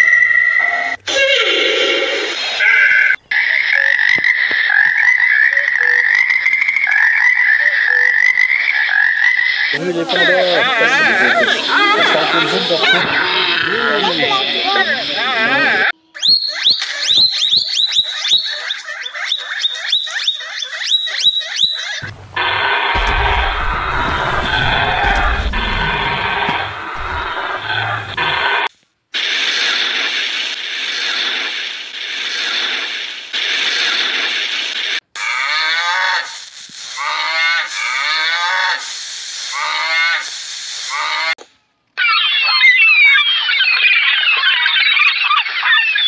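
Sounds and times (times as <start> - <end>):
steady hiss: 9.8 - 15.8, 36.2 - 41.3
loud rushing noise: 22.0 - 28.4.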